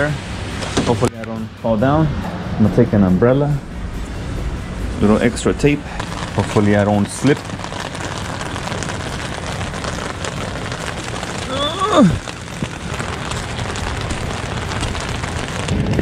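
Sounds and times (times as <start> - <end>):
rain on umbrella and roof: 0.0 - 1.3, 5.0 - 16.0.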